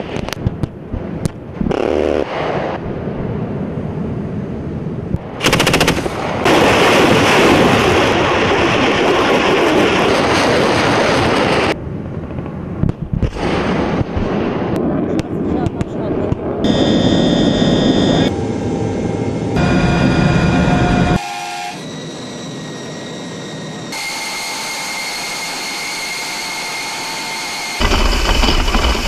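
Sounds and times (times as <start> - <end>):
automatic weapon fire: 5.4 - 6.6.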